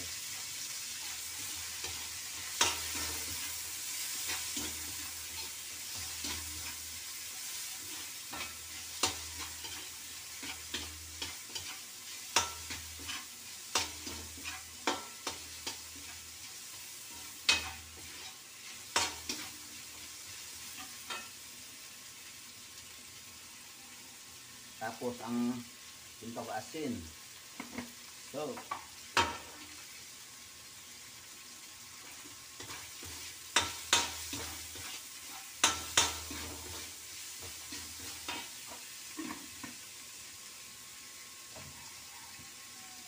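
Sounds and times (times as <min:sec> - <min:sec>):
food sizzling in a wok: 0:00.0 - 0:43.0
metal ladle scraping a pan: 0:01.0 - 0:16.3, 0:17.1 - 0:19.8, 0:32.1 - 0:39.6.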